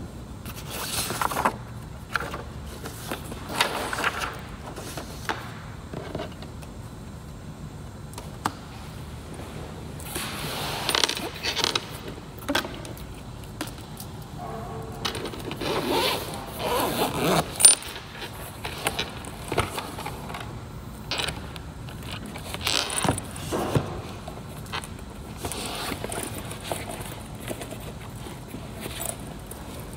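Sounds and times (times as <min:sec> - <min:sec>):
papers rustling and sliding: 0:00.5 - 0:05.4.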